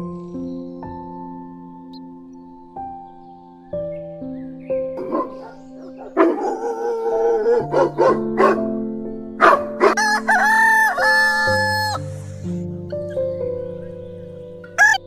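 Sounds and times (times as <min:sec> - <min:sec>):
background music: 0:00.0 - 0:15.0
rooster crowing: 0:09.9 - 0:12.0, 0:14.8 - 0:15.0.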